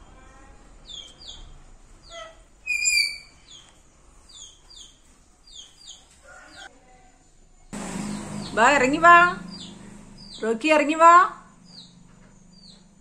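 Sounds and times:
parakeet chirping: 0.9s - 3.7s, 8.0s - 10.5s, 11.6s - 12.9s.

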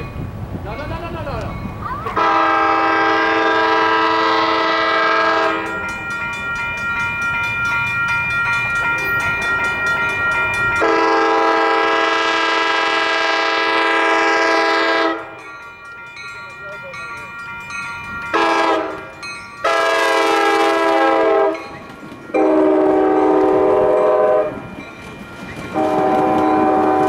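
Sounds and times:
train horn blasts: 2.2s - 5.9s, 10.8s - 15.4s, 18.3s - 21.8s, 22.4s - 24.7s, 25.8s - 27.0s.

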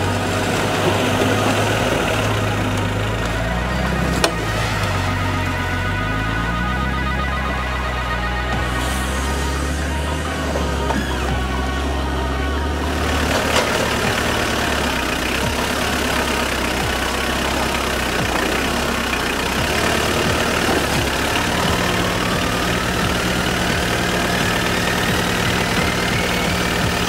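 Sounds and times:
diesel engine running: 0.0s - 27.0s.

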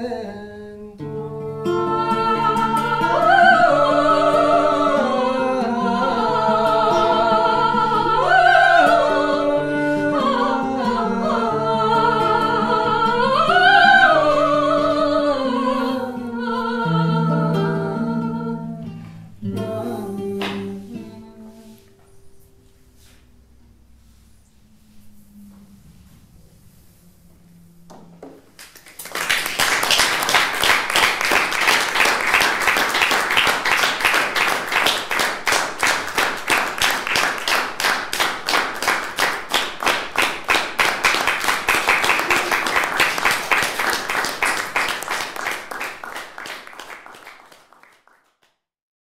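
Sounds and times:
audience applauding: 28.6s - 48.6s.

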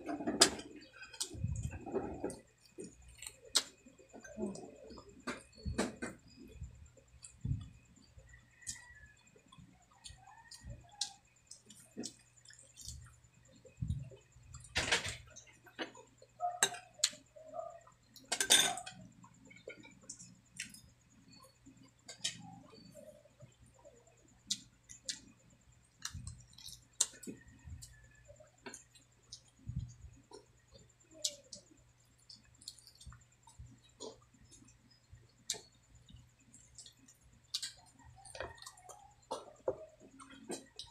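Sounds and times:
chewing and lip smacking: 28.6s - 40.9s.

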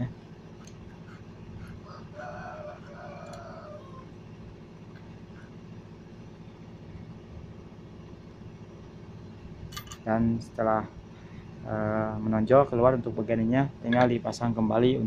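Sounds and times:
steady low hum: 0.0s - 15.0s
rooster crowing: 1.6s - 4.3s.

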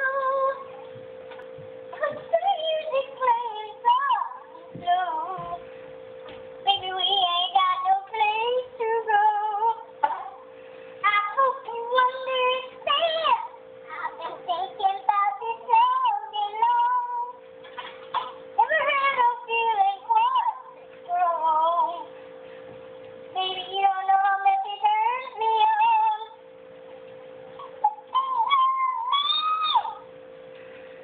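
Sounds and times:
boy singing: 0.0s - 0.7s, 2.0s - 5.6s, 11.1s - 17.4s, 23.4s - 26.3s
steady low hum: 0.0s - 31.0s.

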